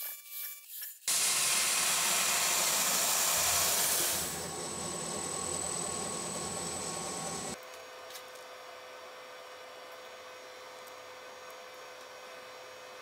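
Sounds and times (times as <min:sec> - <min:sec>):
high steady whine: 0:01.1 - 0:07.6
mill machine hiss: 0:01.1 - 0:07.6.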